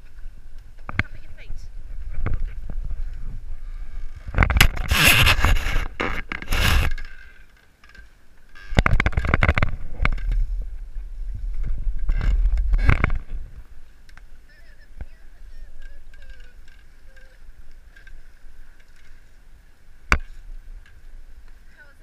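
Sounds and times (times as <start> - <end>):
wind buffeting microphone: 0.0 - 7.0, 8.7 - 18.7.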